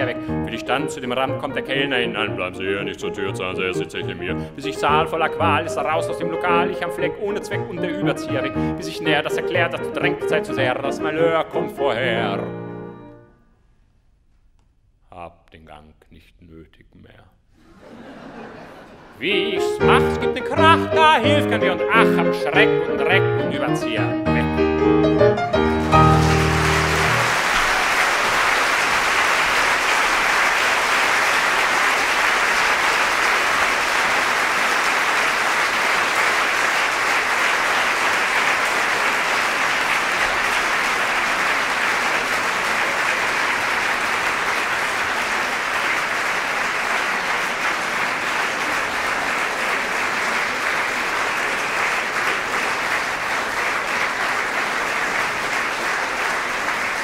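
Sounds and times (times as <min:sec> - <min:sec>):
audience applauding: 0:00.0 - 0:01.2, 0:01.8 - 0:11.6, 0:25.5 - 0:57.0.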